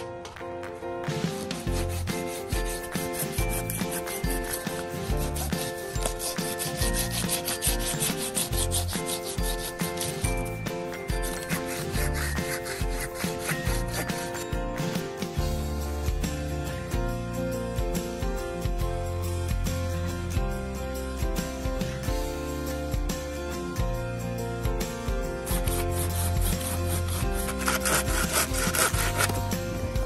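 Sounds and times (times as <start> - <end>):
pruning saw rasping through limb: 1.2 - 14.6, 25.5 - 29.7
music with bass beat: 13.7 - 30.0.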